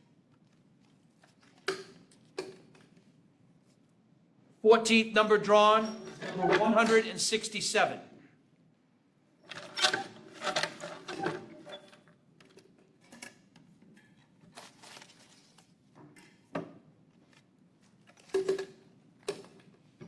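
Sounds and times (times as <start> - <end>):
light clicks and paper rustles: 0.3 - 3.9, 12.4 - 16.4.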